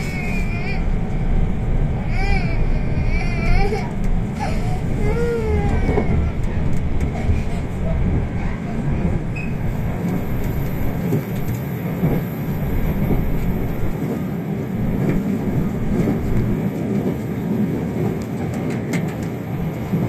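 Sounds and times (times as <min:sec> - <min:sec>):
train wheels rumbling: 0:00.0 - 0:20.0.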